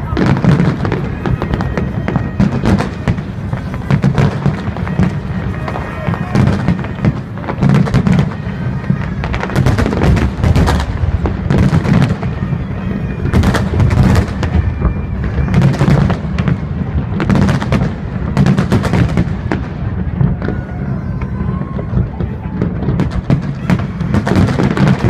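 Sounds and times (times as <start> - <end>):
fireworks bursting with sharp bangs: 0.0 - 25.0
low rumble of detonations: 0.0 - 25.0.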